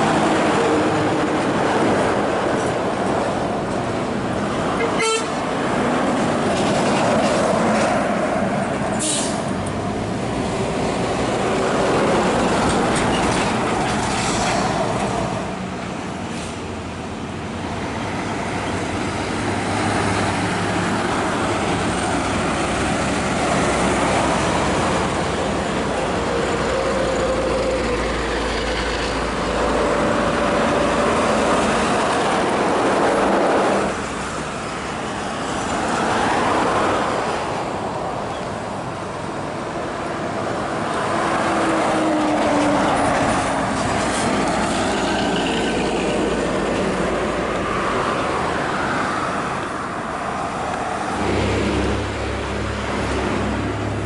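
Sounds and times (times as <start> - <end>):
diesel trucks passing on highway: 0.0 - 54.0.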